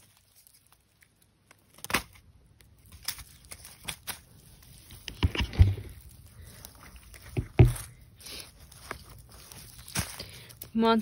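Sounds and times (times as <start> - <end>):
twigs and leaves crackling: 0.0 - 11.0
dull thuds in undergrowth: 7.1 - 8.0.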